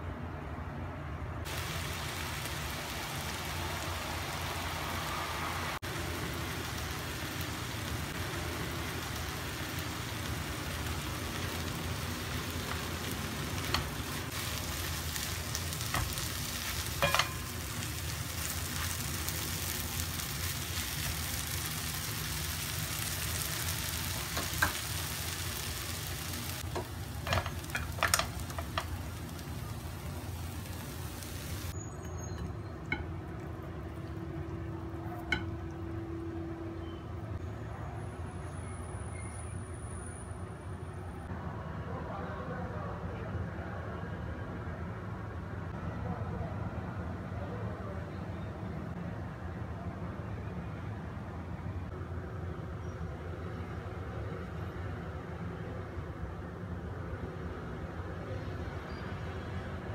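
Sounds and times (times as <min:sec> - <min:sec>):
food sizzling in a wok: 0:01.5 - 0:31.8
spatula stirring: 0:13.7 - 0:19.1.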